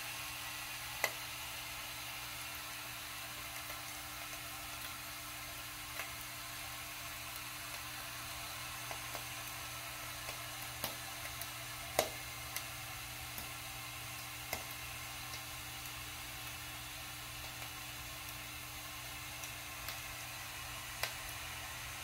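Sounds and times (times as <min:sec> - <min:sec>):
boiler sizzling with small ticks: 0:00.0 - 0:22.0.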